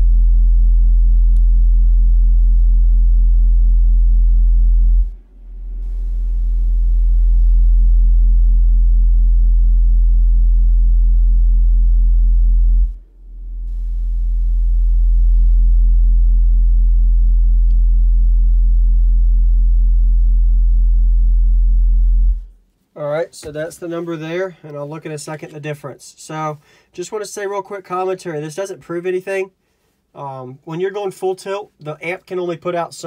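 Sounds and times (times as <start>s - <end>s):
subwoofer low sine tone: 0.0s - 22.8s.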